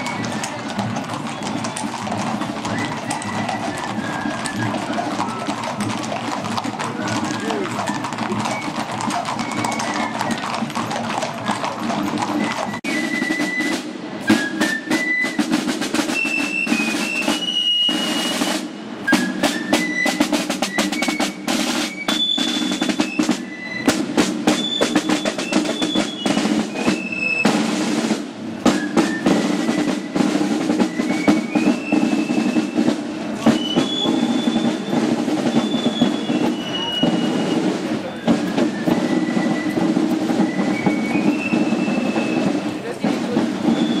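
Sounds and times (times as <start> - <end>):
snare drums playing a march: 0.0 - 44.0.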